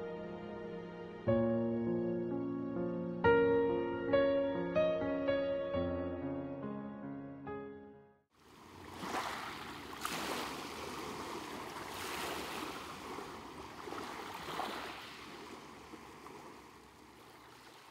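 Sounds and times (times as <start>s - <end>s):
sharp water splashes: 8.4s - 17.9s
small waves lapping at shore: 8.4s - 17.9s.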